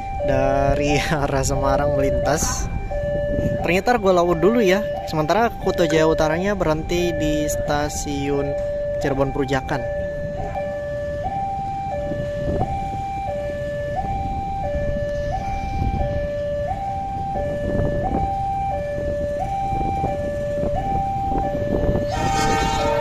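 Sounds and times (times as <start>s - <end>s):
level crossing two-tone alarm: 0.0s - 23.0s.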